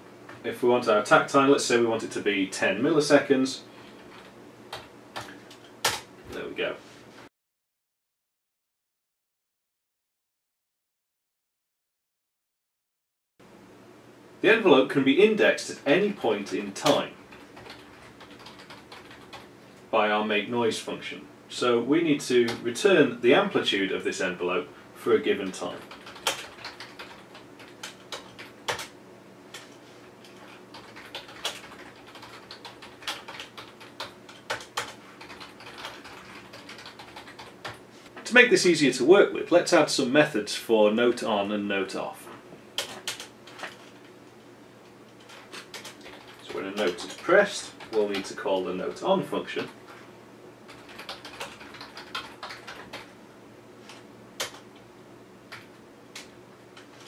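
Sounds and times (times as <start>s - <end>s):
computer keyboard typing: 3.9s - 6.1s, 16.4s - 19.5s, 25.5s - 28.9s, 29.5s - 37.8s, 42.8s - 44.0s, 45.2s - 48.4s, 50.7s - 53.1s, 53.9s - 54.7s, 55.5s - 57.0s.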